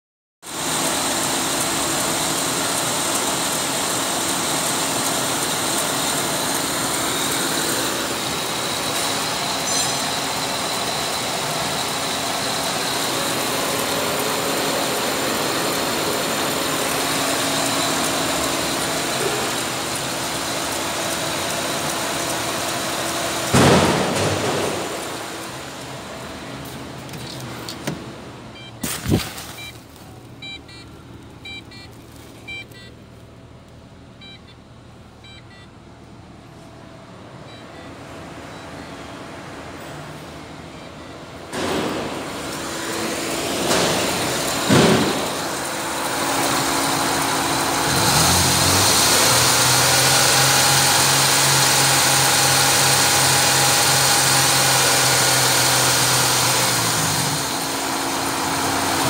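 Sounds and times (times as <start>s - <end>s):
car engine idling: 0.5s - 28.7s, 29.5s - 59.0s
loud thump: 23.5s - 25.0s, 41.5s - 42.4s, 43.6s - 45.6s.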